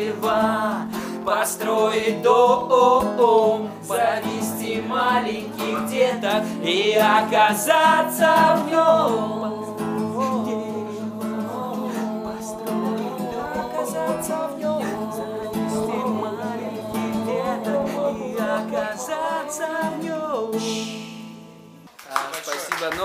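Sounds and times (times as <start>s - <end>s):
man singing: 0.0s - 21.2s
acoustic guitar: 0.0s - 22.0s.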